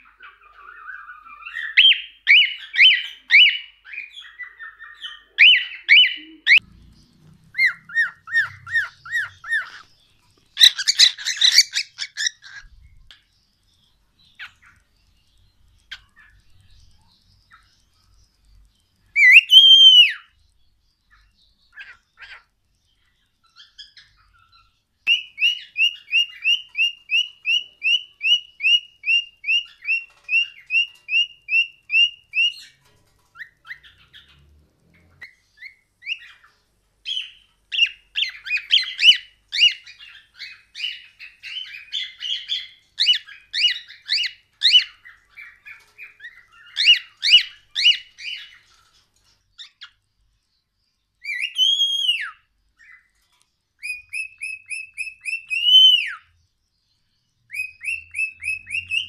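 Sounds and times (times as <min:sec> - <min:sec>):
bird chirps: 0:00.0 - 0:59.0
cockatiels whistling: 0:00.2 - 0:06.6, 0:07.5 - 0:09.9, 0:10.6 - 0:12.6, 0:19.2 - 0:20.3, 0:23.6 - 0:32.7, 0:37.1 - 0:48.6, 0:51.2 - 0:53.0, 0:53.8 - 0:56.3, 0:57.5 - 0:59.0.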